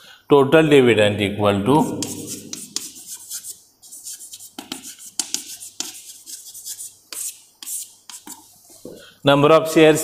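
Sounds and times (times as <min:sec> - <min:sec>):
chalk scratching on blackboard: 0:01.8 - 0:08.8.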